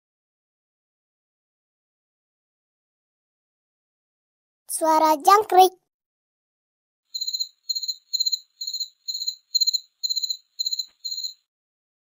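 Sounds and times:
cricket chirping: 7.1s - 11.5s.

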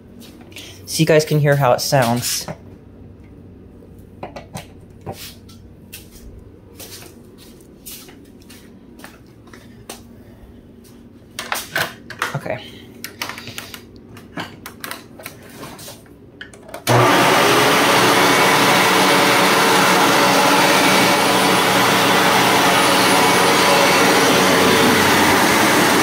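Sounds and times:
vacuum cleaner motor whirring: 16.8s - 26.0s.

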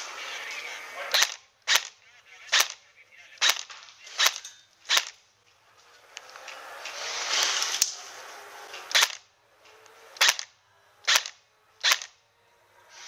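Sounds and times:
noise: 0.0s - 13.0s
airsoft gun shots: 1.1s - 2.8s, 3.4s - 5.2s, 8.9s - 9.2s, 10.2s - 12.2s.

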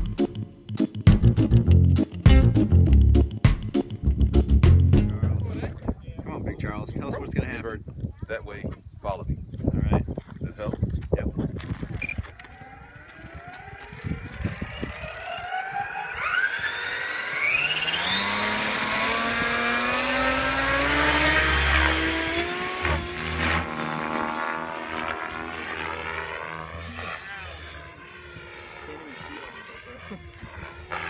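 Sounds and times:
model helicopter motor whine: 11.6s - 31.0s.

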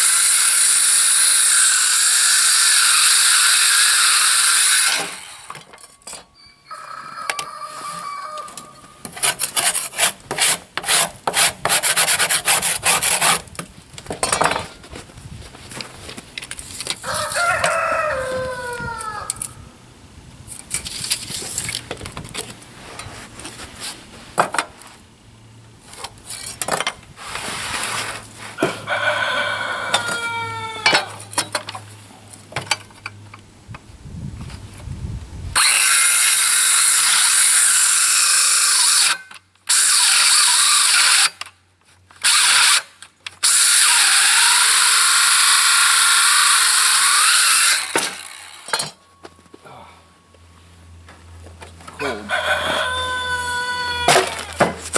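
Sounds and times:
circular saw cutting wood: 0.0s - 5.7s, 9.1s - 13.5s, 35.6s - 41.4s, 42.2s - 48.9s.

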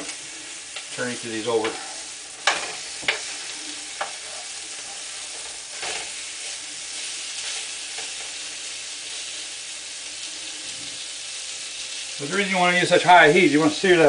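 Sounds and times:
steaks sizzling in frying pan: 0.0s - 14.0s
tongs scraping pan: 1.5s - 8.4s.

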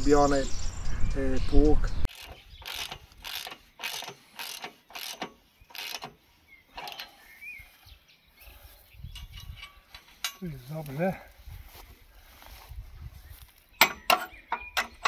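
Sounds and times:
scraping mechanical strokes: 2.0s - 7.3s.

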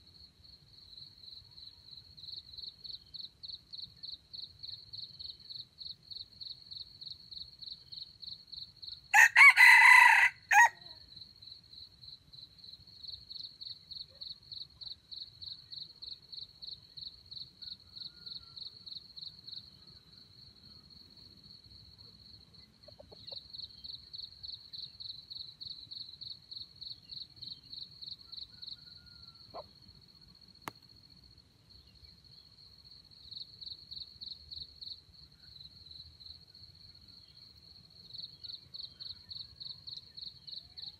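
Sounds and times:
crickets chirping: 0.0s - 40.9s
rooster crowing: 9.1s - 11.0s, 17.9s - 18.6s, 28.4s - 29.6s.

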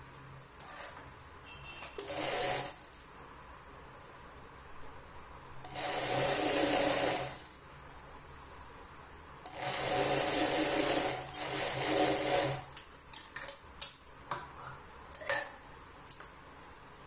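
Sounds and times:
sewing machine whirring: 1.8s - 3.1s, 5.6s - 7.6s, 9.4s - 12.8s
sharp clicks and handling noises: 12.7s - 14.4s.

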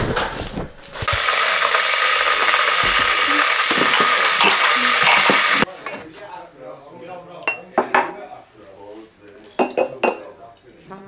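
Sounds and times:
small appliance motor whirring: 1.0s - 5.7s.

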